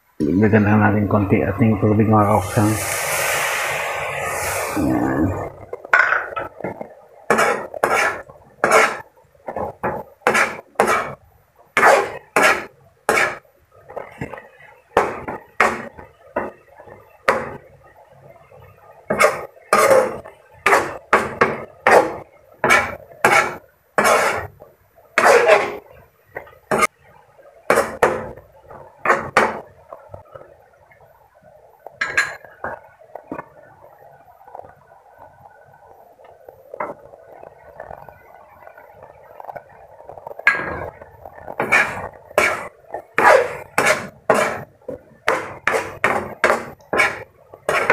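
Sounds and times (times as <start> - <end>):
utensil scraping a frying pan: 7.3 - 11.2, 11.8 - 13.4, 19.1 - 24.5, 25.2 - 25.9, 40.4 - 47.9.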